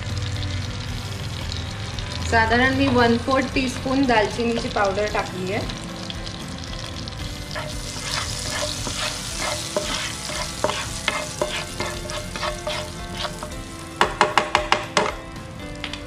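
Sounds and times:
butter sizzling in a pan: 0.0 - 15.3
spatula scraping a pan: 7.5 - 13.7.

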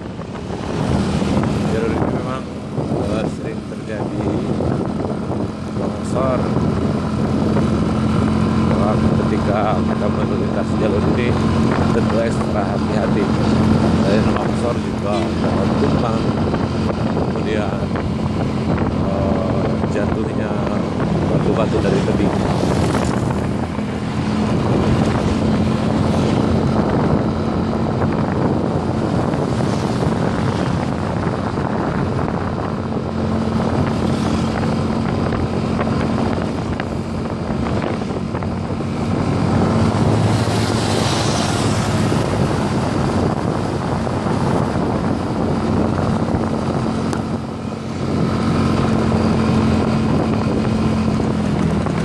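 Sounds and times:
motorcycle engine running: 0.0 - 52.0
wind rush on microphone: 0.0 - 52.0.

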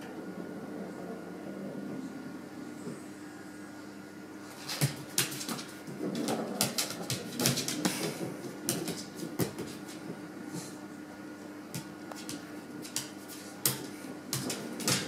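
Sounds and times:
dog claws clicking on floor: 4.6 - 10.0, 11.8 - 15.0.

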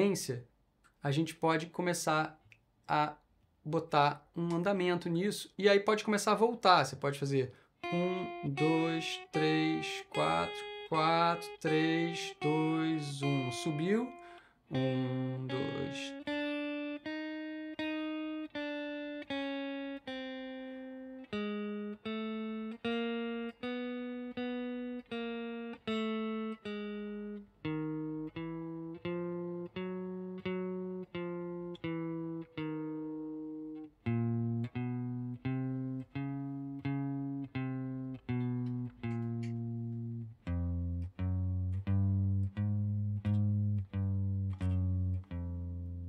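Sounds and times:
clean electric guitar notes: 7.8 - 46.0.

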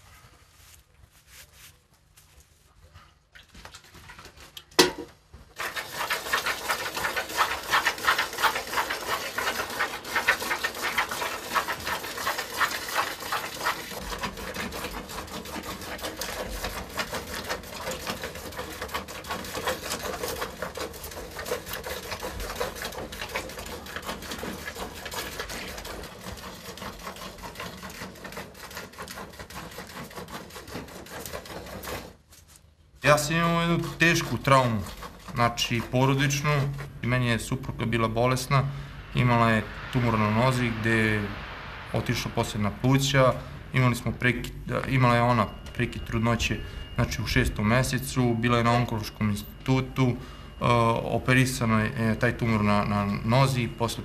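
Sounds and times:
milk squirting into plastic bucket: 5.5 - 32.2.

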